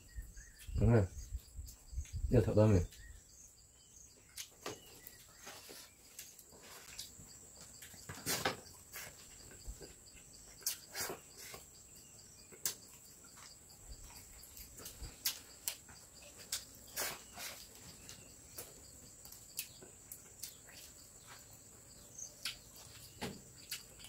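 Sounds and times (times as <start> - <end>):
insects droning: 0.0 - 24.0
clicks and rustles of eating: 4.3 - 11.7, 12.4 - 21.7, 22.3 - 24.0.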